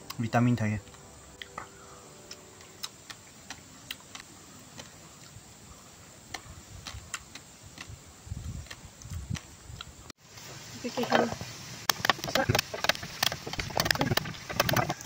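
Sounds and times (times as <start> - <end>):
person chewing food: 0.8 - 5.4, 6.3 - 10.0.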